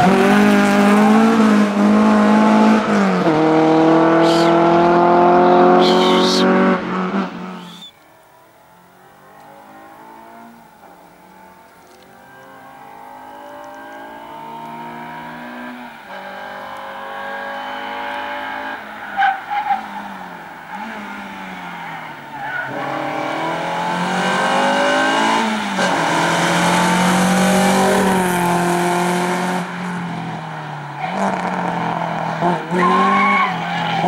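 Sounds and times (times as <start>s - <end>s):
car engine revving hard: 0.0s - 7.8s, 22.7s - 30.4s
tyre squeal: 7.6s - 8.0s, 32.7s - 34.0s.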